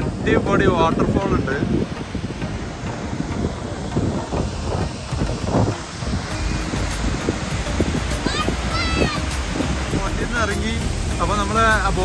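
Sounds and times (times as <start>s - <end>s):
waterfall rushing: 0.0s - 12.0s
wind buffeting microphone: 0.0s - 12.0s.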